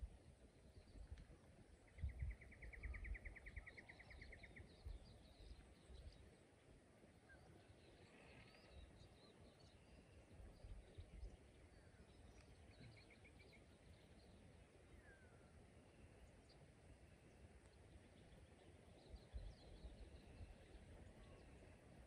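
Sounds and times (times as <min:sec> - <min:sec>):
wind rumble on microphone: 0:00.0 - 0:06.2, 0:19.0 - 0:22.0.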